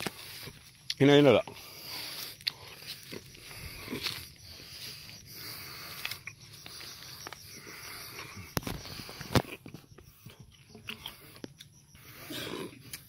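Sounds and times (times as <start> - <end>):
footsteps on dirt path: 1.5 - 10.5.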